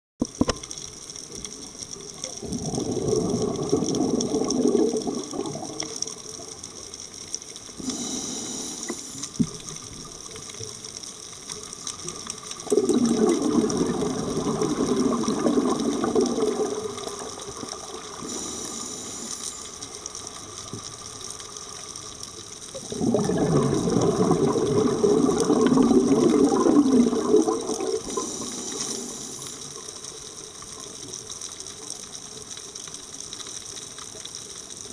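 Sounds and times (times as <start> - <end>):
bubbling exhalations underwater: 2.3 - 6.1, 12.6 - 19.1, 22.8 - 29.4
hissing regulator inhalation: 7.8 - 9.4, 18.2 - 20.0, 28.0 - 29.7.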